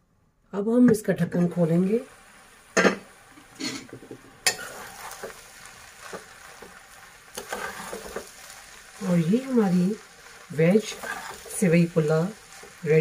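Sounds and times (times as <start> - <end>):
food sizzling: 0.9 - 13.0
spoon clinking and scraping pot: 3.6 - 5.4.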